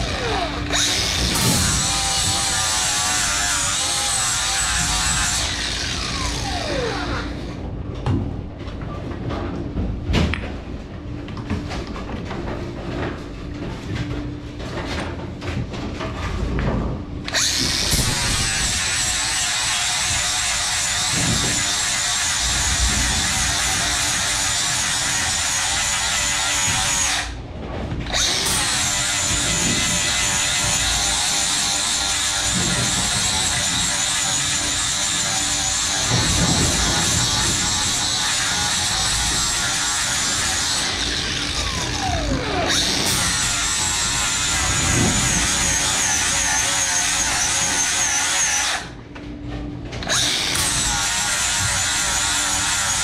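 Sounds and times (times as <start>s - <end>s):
angle grinder grinding metal: 0.0s - 7.6s, 17.3s - 27.4s, 28.1s - 49.0s, 50.0s - 53.0s.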